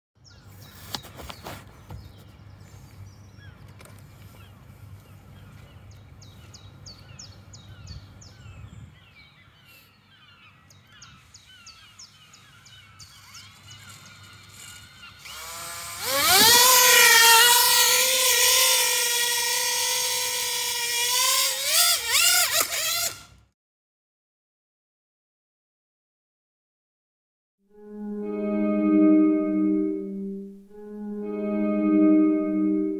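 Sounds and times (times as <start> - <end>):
birds chirping: 0.2 - 15.5
low wind rumble: 4.6 - 9.3
drone propellers whining: 14.1 - 23.2.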